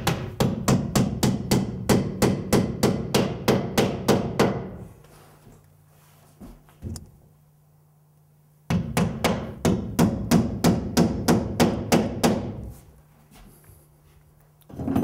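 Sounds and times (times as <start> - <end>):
hammer driving a nail: 0.0 - 4.8, 8.7 - 12.7.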